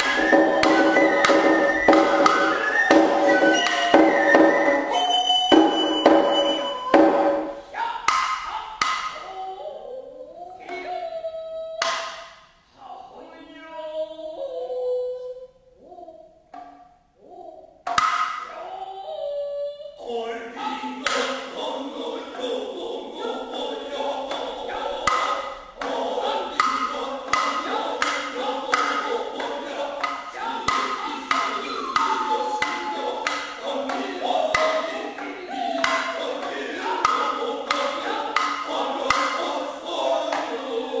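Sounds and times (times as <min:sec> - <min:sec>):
sharp drum strokes: 0:00.0 - 0:09.2, 0:24.3 - 0:39.6
voices chanting in unison: 0:00.0 - 0:12.3, 0:19.9 - 0:41.0.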